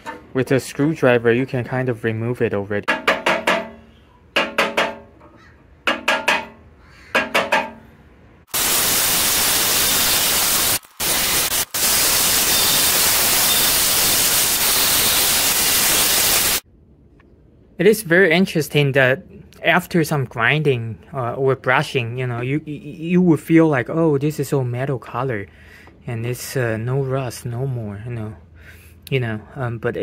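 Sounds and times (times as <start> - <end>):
drill wire brush grinding metal: 8.6 - 16.6.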